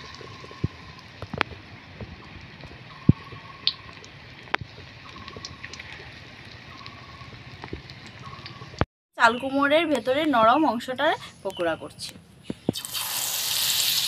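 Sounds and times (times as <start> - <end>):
oil pops and crackles: 0.0 - 6.6, 12.6 - 14.0
fish deep-frying in oil: 0.0 - 8.8, 12.7 - 14.0.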